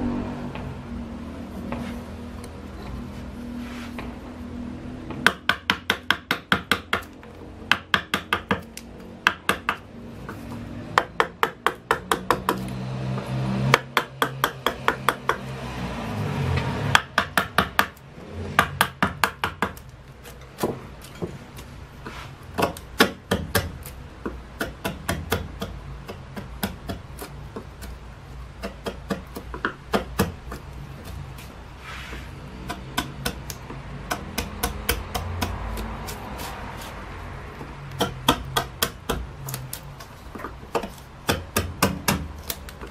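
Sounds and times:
mallet tapping chisel into wood: 0:05.1 - 0:07.1, 0:07.7 - 0:12.7, 0:13.7 - 0:15.4, 0:16.9 - 0:18.0, 0:18.6 - 0:19.9, 0:22.5 - 0:27.9, 0:28.6 - 0:30.7, 0:32.6 - 0:35.6, 0:37.9 - 0:39.3, 0:40.3 - 0:42.8.

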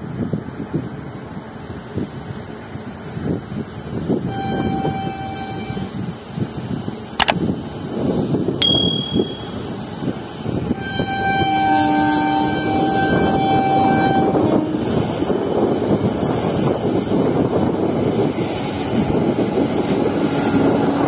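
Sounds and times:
locomotive horn blasts: 0:04.2 - 0:06.0, 0:10.7 - 0:15.0
sharp clicks: 0:07.2 - 0:07.4.

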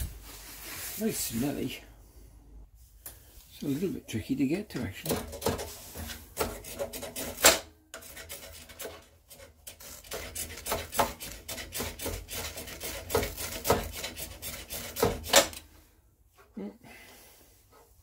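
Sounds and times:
knife scraping ferro rod: 0:05.1 - 0:15.6.

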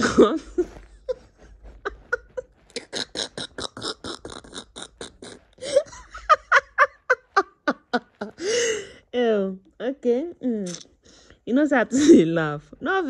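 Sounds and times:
woman laughing hard: 0:00.0 - 0:08.9.

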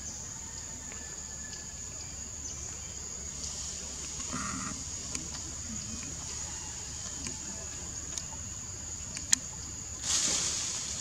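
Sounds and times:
high-pitched insect drone: 0:04.2 - 0:08.8
faint clicks: 0:09.0 - 0:09.6.

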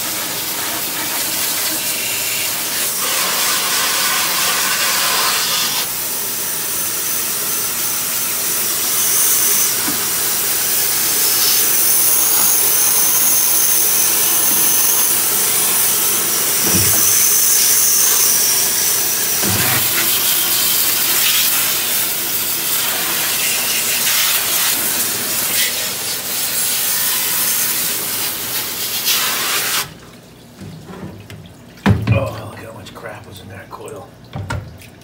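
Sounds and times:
spray can hissing: 0:11.1 - 0:29.9.

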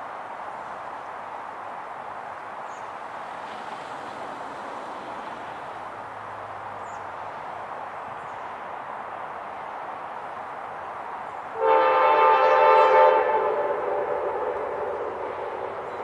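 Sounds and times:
outdoor rushing noise: 0:10.0 - 0:16.0.

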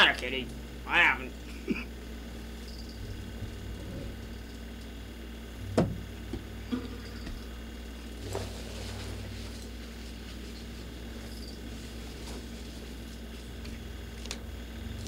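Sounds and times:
low electrical hum: 0:00.0 - 0:15.0
knocks and thumps: 0:05.6 - 0:07.4.

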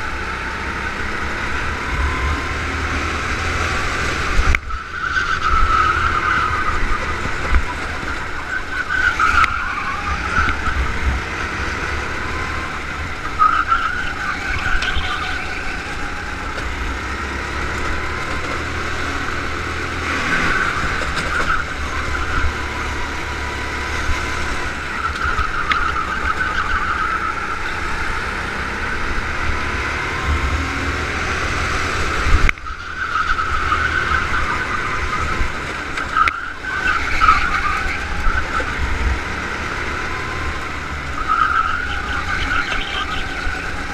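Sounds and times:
go-kart engine revving: 0:00.0 - 0:43.9
wind rumble on microphone: 0:10.2 - 0:11.6.

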